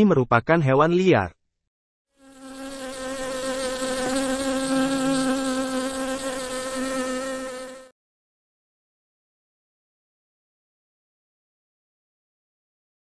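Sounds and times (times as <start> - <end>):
wasps buzzing: 2.2 - 7.9.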